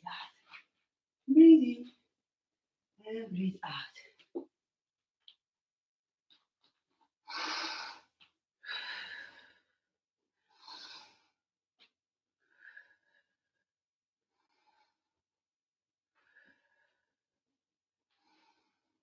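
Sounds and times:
woman breathing in and out: 0:07.2 - 0:11.4, 0:12.4 - 0:13.6, 0:14.3 - 0:15.2, 0:16.1 - 0:17.2, 0:18.1 - 0:19.0.

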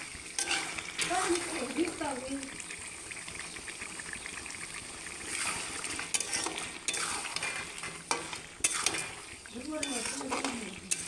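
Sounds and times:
faint sizzle: 0:00.0 - 0:11.0
spatula clinking on metal pan: 0:00.4 - 0:00.7, 0:09.8 - 0:11.0
spatula scraping a pan: 0:00.4 - 0:01.8, 0:05.2 - 0:11.0.

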